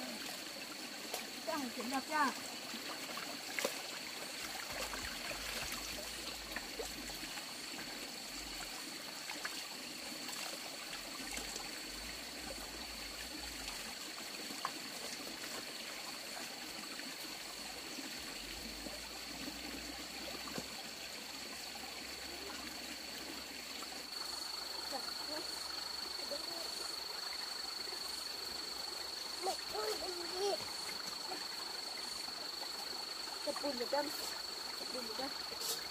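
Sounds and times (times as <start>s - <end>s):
stream trickling over stones: 0.0s - 35.9s.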